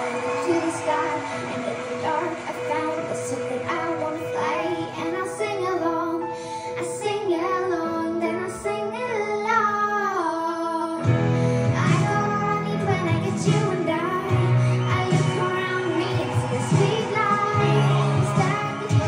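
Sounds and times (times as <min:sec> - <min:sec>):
girl singing a pop ballad: 0:00.0 - 0:19.0
heavy bass: 0:11.1 - 0:19.0.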